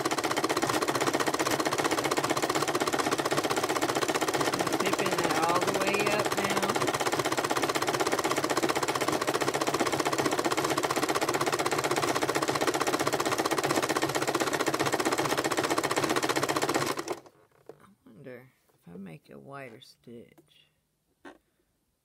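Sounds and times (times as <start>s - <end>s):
sewing machine running: 0.0s - 17.3s.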